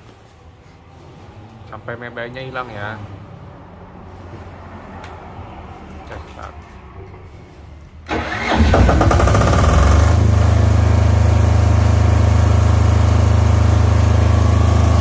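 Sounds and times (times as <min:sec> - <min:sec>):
generator engine running: 0:08.0 - 0:15.0
starter cranking: 0:08.1 - 0:10.1.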